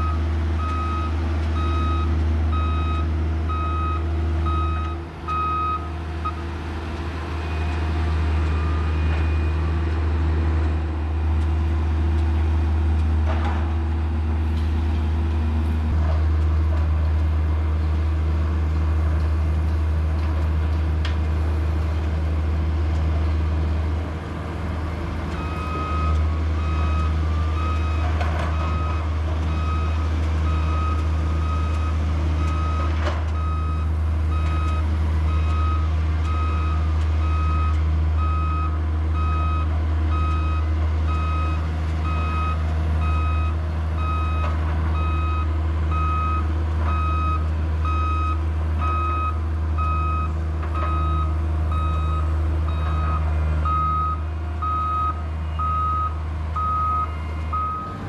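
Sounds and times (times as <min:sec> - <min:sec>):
reversing alarm beeping: 0:00.0 - 0:06.4, 0:08.5 - 0:09.7, 0:25.4 - 0:58.0
diesel engine running: 0:00.0 - 0:58.0.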